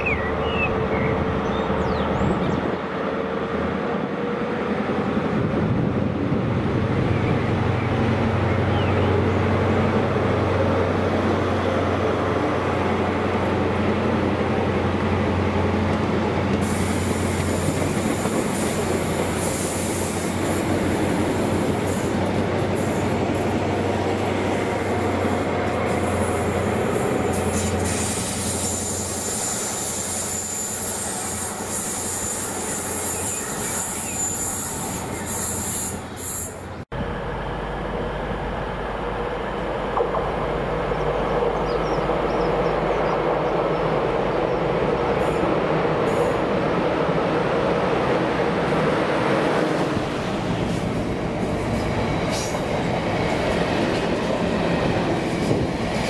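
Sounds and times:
wheel squeal and hiss: 16.6 - 22.1, 24.6 - 36.8
diesel engine humming: 36.9 - 43.0.

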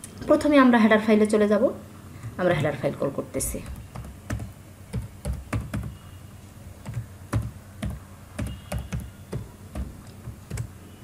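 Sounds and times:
computer keyboard keystrokes clicking: 3.6 - 5.9, 6.8 - 10.8.

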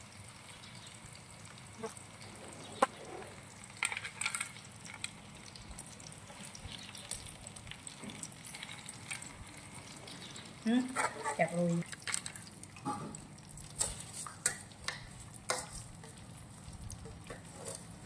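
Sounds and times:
food sizzling in a pan: 0.0 - 18.0
utensil clicking in a pan: 13.6 - 16.2.

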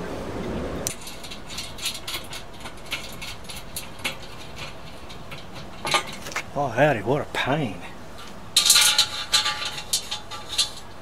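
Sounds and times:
metallic clicks and scrapes of bolts: 0.8 - 6.5, 8.2 - 11.0.

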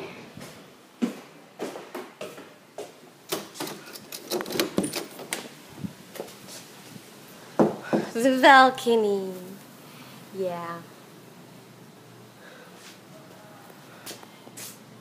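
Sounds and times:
footsteps on hard floor: 0.4 - 3.0.

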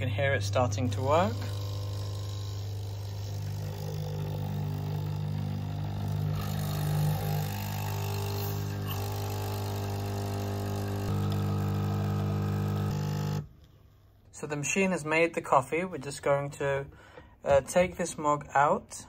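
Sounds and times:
coffee machine pump buzzing: 0.0 - 13.5.

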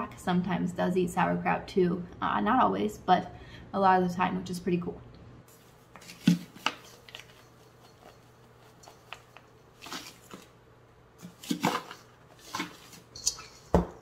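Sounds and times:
hands rustling cabbage: 5.5 - 10.6, 11.2 - 13.7.

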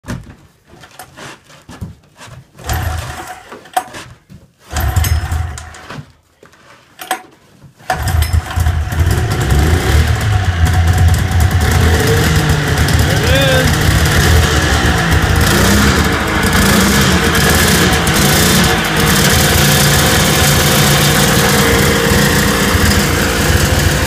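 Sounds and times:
snowmobile engine running: 7.9 - 24.0
snowmobile engine sputtering: 7.9 - 24.0.

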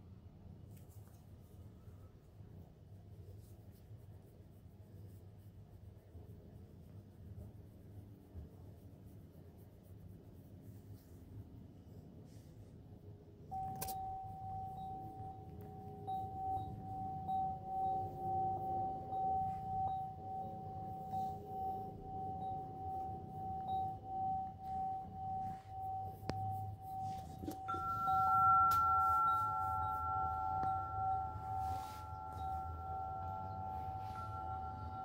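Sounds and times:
bell-like ringing tone: 13.5 - 35.0
higher ringing tone: 13.5 - 35.0.

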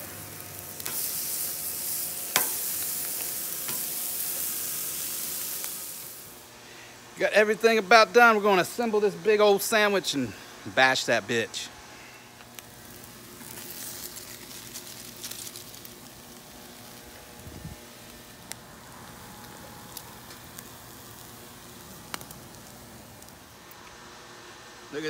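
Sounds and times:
food sizzling on griddle: 0.0 - 6.4, 12.4 - 23.6.

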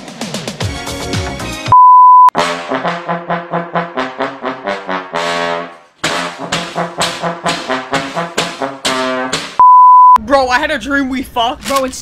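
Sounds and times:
high test-tone beep: 1.8 - 2.4, 9.6 - 10.2
brass staccato notes: 2.4 - 9.6.

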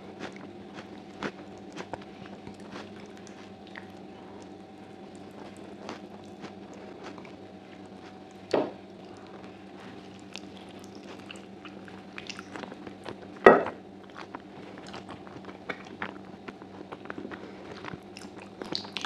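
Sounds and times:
faint steady hum: 0.0 - 19.0
wet sticky tearing and eating: 9.1 - 13.3, 14.1 - 19.0.

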